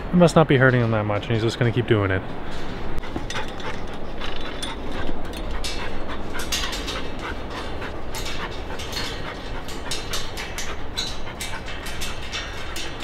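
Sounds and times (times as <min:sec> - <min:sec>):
dog claws clicking on metal stairs: 0:03.0 - 0:13.0.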